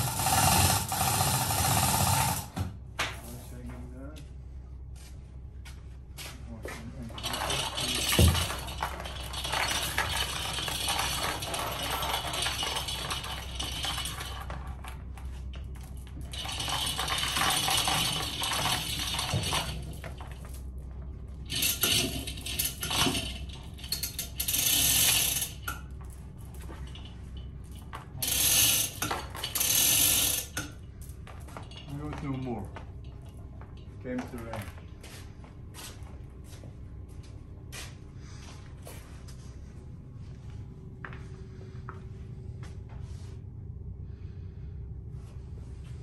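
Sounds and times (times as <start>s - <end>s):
steel chain rattling and clinking: 7.1s - 20.7s, 21.4s - 32.6s.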